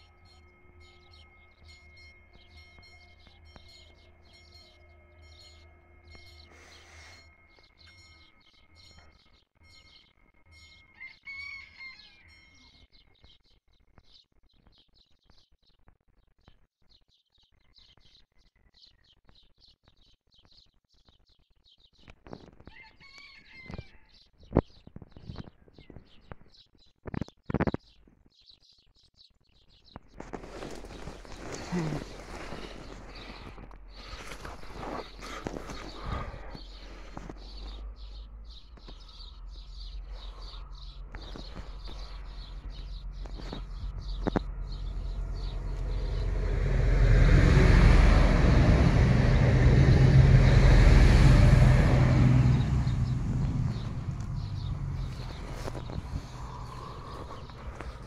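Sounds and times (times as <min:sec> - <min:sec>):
small birds chirping: 0:00.0 - 0:11.1, 0:11.8 - 0:46.3, 0:52.5 - 0:58.0
rooster crowing: 0:10.9 - 0:12.6, 0:22.7 - 0:24.1.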